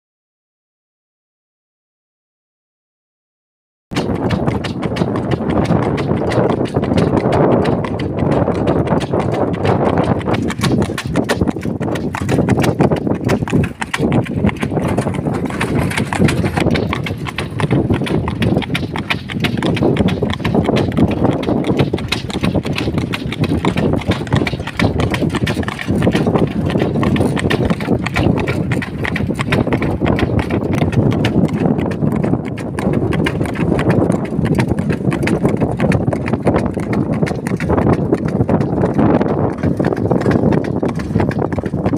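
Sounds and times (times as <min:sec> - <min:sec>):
cart and harness rattling: 0:04.0 - 0:31.7
horse hooves clip-clopping on asphalt: 0:04.0 - 0:41.9.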